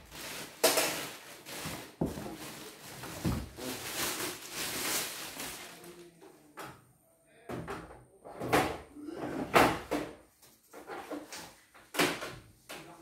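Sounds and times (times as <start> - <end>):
plastic bag rustling: 0.0 - 6.1.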